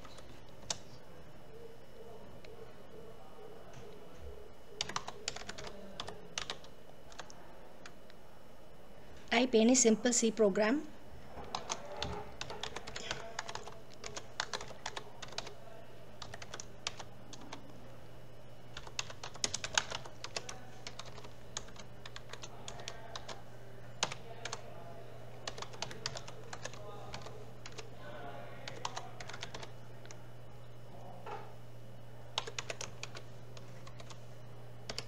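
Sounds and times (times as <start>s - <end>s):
steady low hum: 0.0s - 35.0s
keyboard typing clicks: 4.8s - 8.0s, 11.4s - 15.5s, 16.2s - 17.6s, 18.8s - 23.4s, 24.0s - 24.6s, 25.4s - 27.9s, 28.6s - 30.2s, 32.4s - 34.2s.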